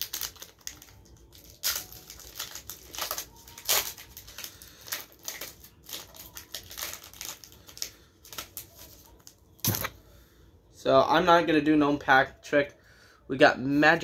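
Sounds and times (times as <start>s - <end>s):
foil wrapper crinkling: 0.0s - 9.9s.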